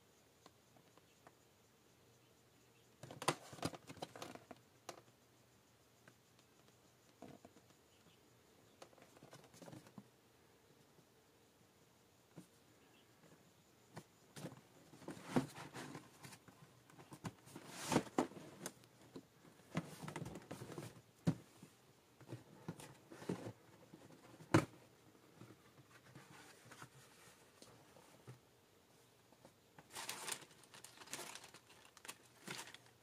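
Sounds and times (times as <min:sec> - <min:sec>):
cardboard box rustling and scraping: 0:15.0 - 0:16.4, 0:17.1 - 0:18.8.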